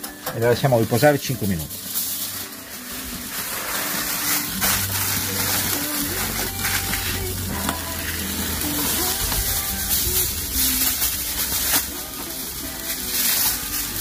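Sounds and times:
faint background music: 0.0 - 14.0
flames crackling: 0.4 - 14.0
steaks sizzling on a grill: 0.4 - 14.0.

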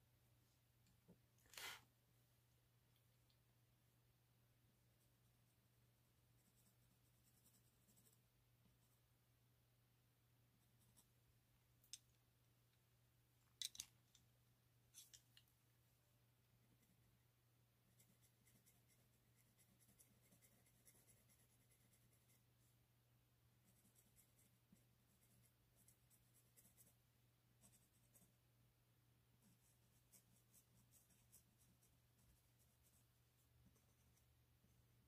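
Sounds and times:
pencil scratching on paper: 6.2 - 9.0, 17.9 - 22.6, 23.6 - 27.0, 27.6 - 28.4, 29.4 - 35.0.

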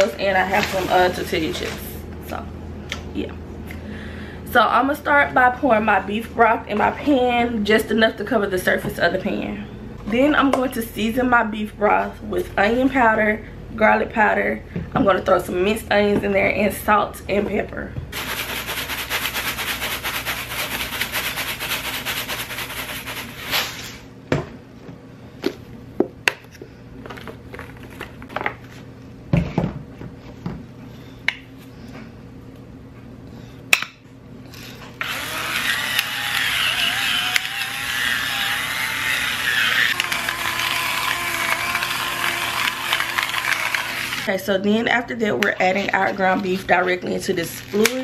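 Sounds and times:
spice grinder motor whirring: 34.5 - 44.3.

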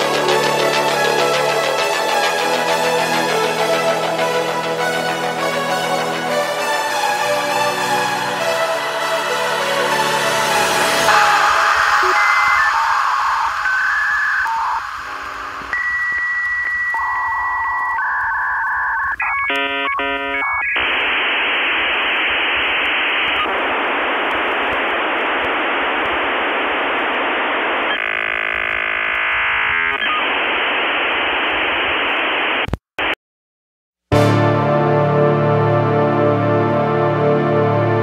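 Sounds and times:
modem high tone: 10.1 - 24.2
modem data hiss: 10.6 - 32.7
modem warbling beeps: 10.8 - 21.2, 27.7 - 30.4.

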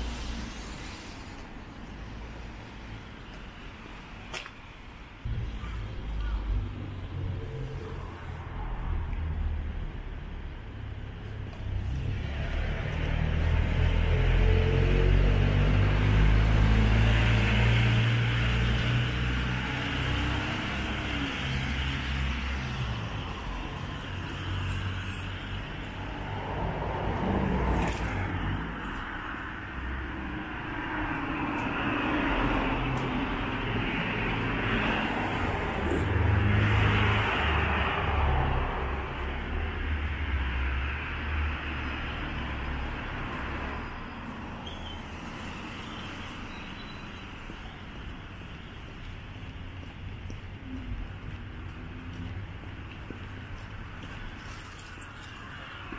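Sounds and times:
cars passing: 0.0 - 55.9
low traffic rumble: 0.0 - 55.9.

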